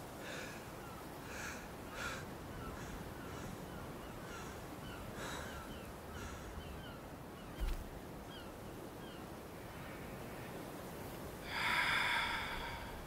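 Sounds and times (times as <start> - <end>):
steady low background noise: 0.0 - 13.0
harsh caw-like bird calls: 0.2 - 7.0.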